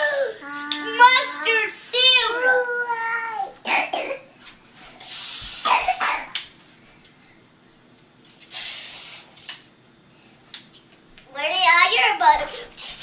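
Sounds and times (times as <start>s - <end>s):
child making hissing mouth sound: 0.4s - 1.1s, 5.0s - 6.2s, 8.5s - 9.4s, 12.5s - 13.0s.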